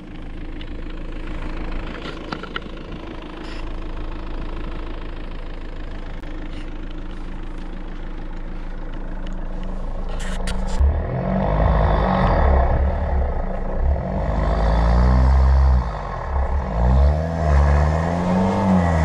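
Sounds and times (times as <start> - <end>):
car engine running steadily: 0.0 - 19.0.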